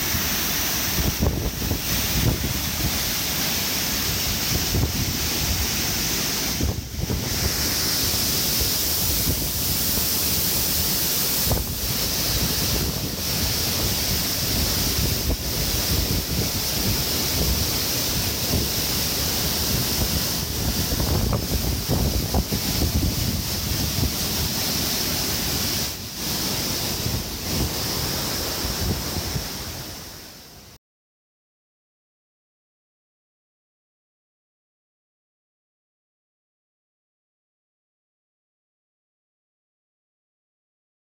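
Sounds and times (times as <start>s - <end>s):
waterfall pouring: 0.0s - 30.0s
stream rushing over stones: 0.0s - 30.5s
wind buffeting microphone: 0.9s - 3.1s, 6.4s - 10.2s, 11.3s - 19.0s, 19.6s - 24.6s.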